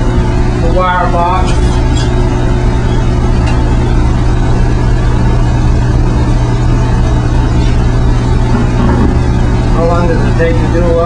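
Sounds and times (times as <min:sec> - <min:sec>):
machinery droning: 0:00.0 - 0:11.0.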